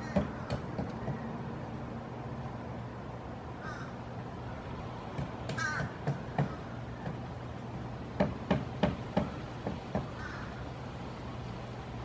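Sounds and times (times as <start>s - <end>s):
woodpecker knocking on wood: 0.0s - 1.3s, 5.1s - 7.3s, 8.1s - 10.4s
bird harsh calls: 9.2s - 10.7s.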